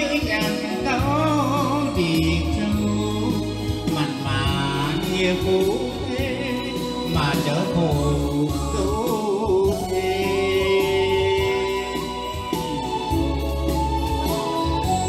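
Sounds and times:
man singing into a microphone: 0.0s - 13.1s
backing music: 0.0s - 15.0s.

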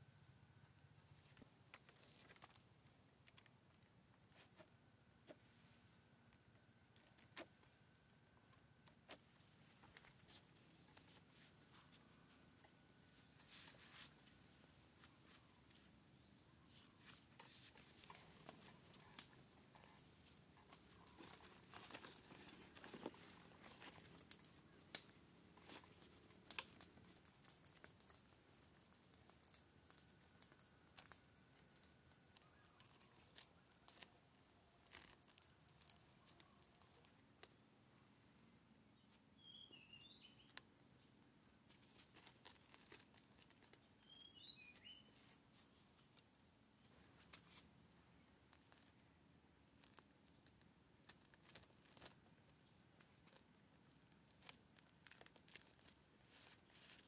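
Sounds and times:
quiet hiss: 0.0s - 57.0s
soft rustle: 0.7s - 57.0s
faint short clicks and crackles: 17.1s - 37.6s.

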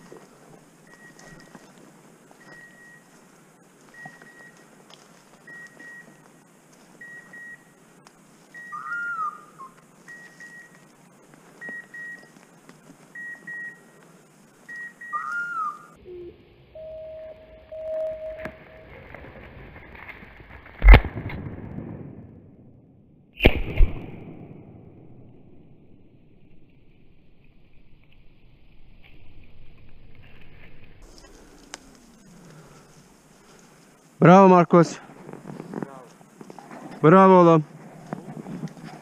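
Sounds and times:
short high beeps: 2.4s - 3.1s, 5.5s - 6.2s, 7.0s - 7.8s, 10.1s - 10.8s, 11.6s - 12.3s, 13.2s - 13.9s, 16.1s - 19.0s
whistled calls: 2.4s - 3.1s, 3.9s - 4.7s, 5.4s - 6.3s, 7.0s - 7.8s, 8.5s - 10.9s, 11.6s - 12.4s, 13.1s - 14.0s, 14.6s - 18.9s
steady lower tone: 15.9s - 19.9s.

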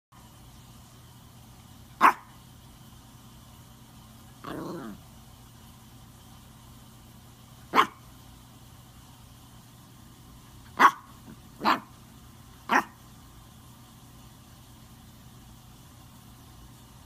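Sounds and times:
puppy barking: 2.0s - 2.4s, 7.7s - 8.0s, 10.7s - 11.9s, 12.6s - 13.0s.

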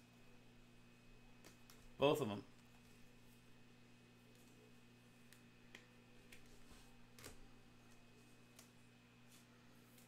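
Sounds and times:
low electrical hum: 0.0s - 10.0s
faint clicks of cards handled: 4.2s - 10.0s.

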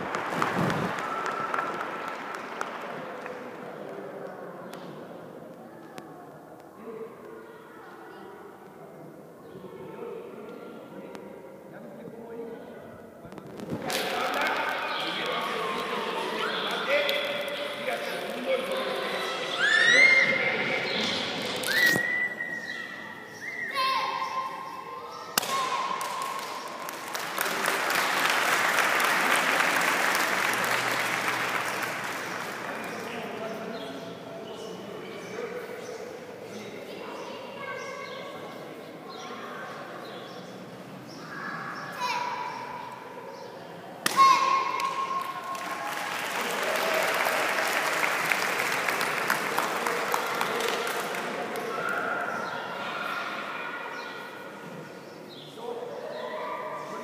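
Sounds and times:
crowd applauding: 0.0s - 4.0s, 13.8s - 19.7s, 26.0s - 33.5s, 45.2s - 51.9s
people clapping: 0.0s - 4.8s, 13.5s - 19.0s, 25.4s - 33.6s, 44.1s - 52.5s.

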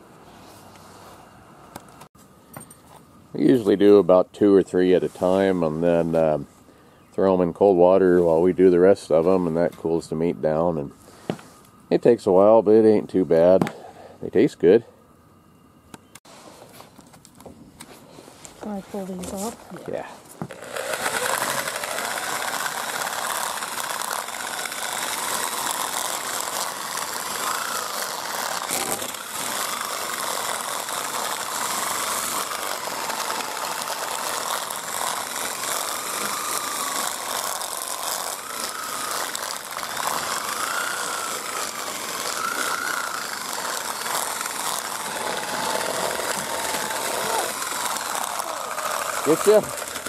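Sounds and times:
electric drill motor whining: 19.2s - 50.0s.

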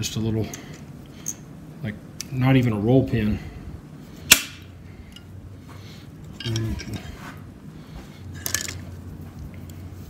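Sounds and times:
pliers clinking and scraping on metal: 6.3s - 7.1s.

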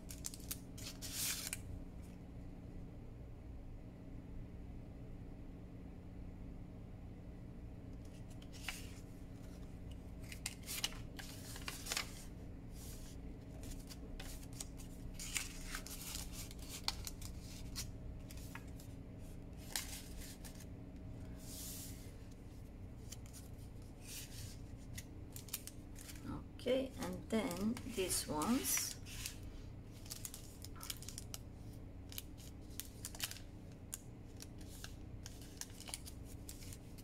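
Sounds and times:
paper rustling and crinkling: 0.0s - 1.6s, 8.0s - 20.7s, 21.3s - 26.3s, 27.0s - 37.0s.

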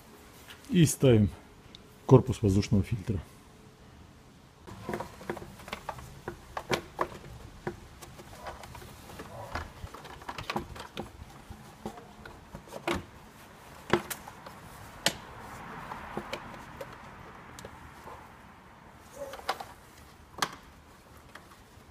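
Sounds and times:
plastic housing clicks and knocks: 4.7s - 13.0s.

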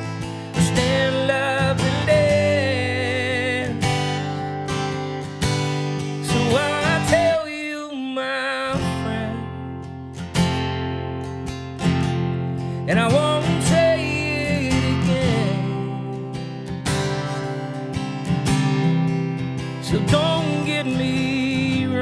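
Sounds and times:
man singing: 0.0s - 5.0s, 6.1s - 9.8s, 12.8s - 16.7s, 19.7s - 22.0s
acoustic guitar strumming: 0.0s - 22.0s.

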